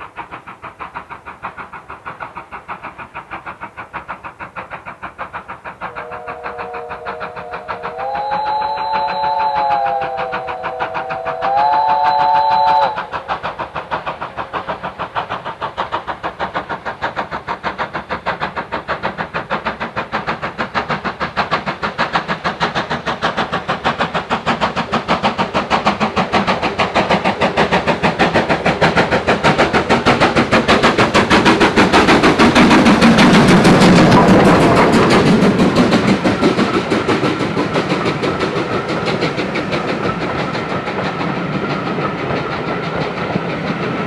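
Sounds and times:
steam locomotive exhaust beats: 0:00.0 - 0:44.0
steam locomotive whistle: 0:05.8 - 0:13.4.

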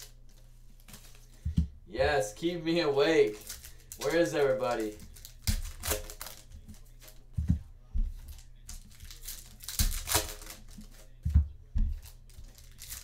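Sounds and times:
card pack wrappers crinkling: 0:03.0 - 0:07.2, 0:08.1 - 0:11.2, 0:12.0 - 0:13.0.

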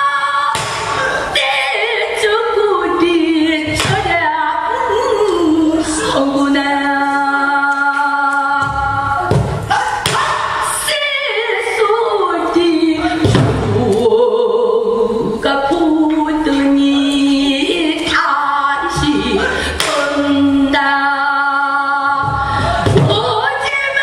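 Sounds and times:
woman singing: 0:00.0 - 0:24.0
barrel drum strokes: 0:22.2 - 0:23.6.

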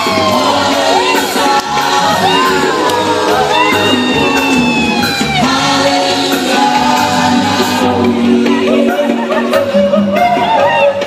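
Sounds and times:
steady low beat: 0:00.0 - 0:10.9
vocal group singing in harmony: 0:00.0 - 0:11.0.

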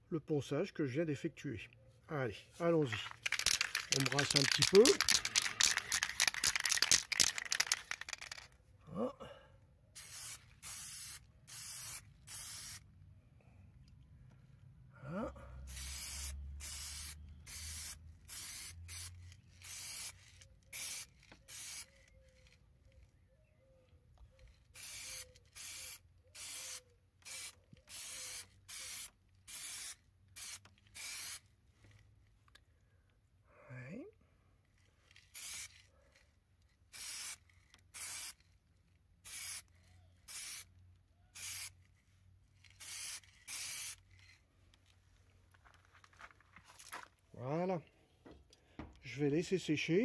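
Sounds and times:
aerosol can spraying: 0:03.2 - 0:08.4, 0:10.0 - 0:12.8, 0:15.7 - 0:21.9, 0:24.8 - 0:31.4, 0:35.4 - 0:35.8, 0:37.0 - 0:38.4, 0:39.3 - 0:39.7, 0:40.3 - 0:40.7, 0:41.4 - 0:41.8, 0:42.7 - 0:44.3.

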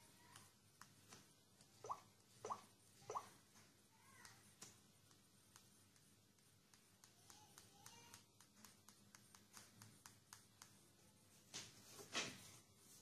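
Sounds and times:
stylus tapping on touchscreen: 0:04.2 - 0:10.9.

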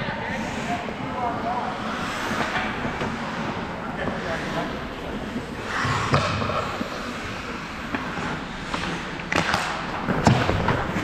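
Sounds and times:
skates scraping ice: 0:00.0 - 0:11.0
stick hitting puck: 0:05.8 - 0:06.9, 0:07.9 - 0:11.0.

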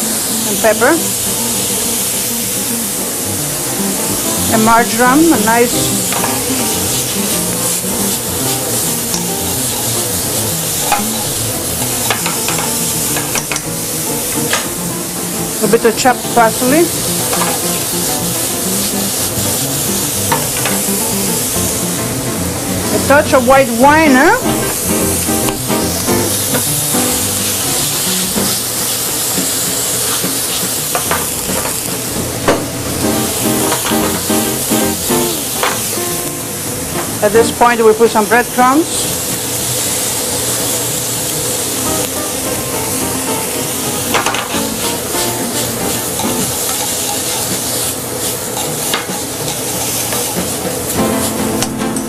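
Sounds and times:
wine sizzling in a hot pan: 0:00.0 - 0:52.0.

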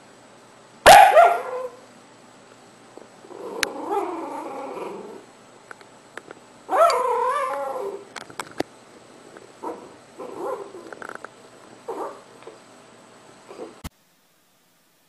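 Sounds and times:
puppy yipping: 0:00.9 - 0:01.8, 0:06.7 - 0:08.0
puppy whimpering grumble: 0:03.2 - 0:05.3, 0:06.7 - 0:08.1
puppy whining: 0:03.3 - 0:05.2, 0:06.7 - 0:08.1, 0:09.6 - 0:11.0.

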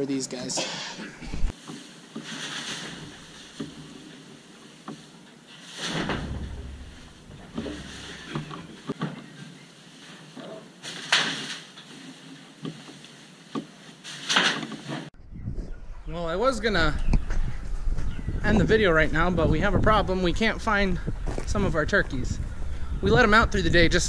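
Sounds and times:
dry hay rustling: 0:01.5 - 0:15.1
hay bale dull thud: 0:05.8 - 0:08.9.

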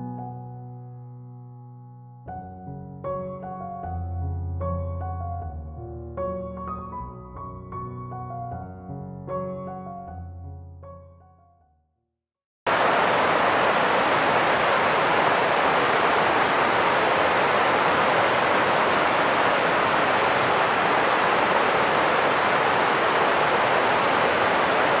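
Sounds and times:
creek rushing over rocks: 0:12.7 - 0:25.0.

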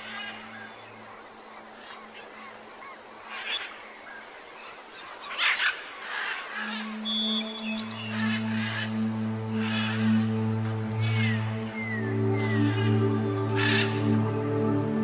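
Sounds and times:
bird calls: 0:00.0 - 0:14.8
steady hiss: 0:00.0 - 0:15.0
low music drone: 0:06.1 - 0:15.0
whistled glides: 0:06.2 - 0:15.0.

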